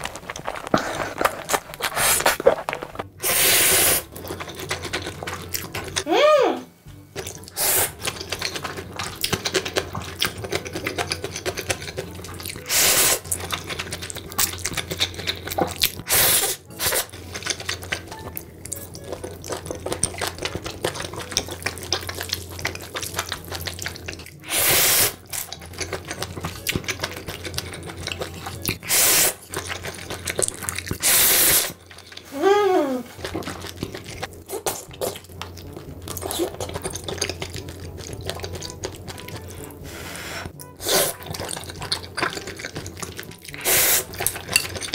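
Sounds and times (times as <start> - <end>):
person slurping noodles: 0.0 - 4.2, 7.5 - 8.6, 12.6 - 13.3, 16.0 - 17.8, 24.4 - 25.5, 28.8 - 35.2, 39.6 - 41.6, 43.5 - 44.4
person chewing and smacking: 0.0 - 6.1, 7.1 - 32.3, 33.1 - 44.9
person humming: 6.0 - 6.7, 32.3 - 33.2.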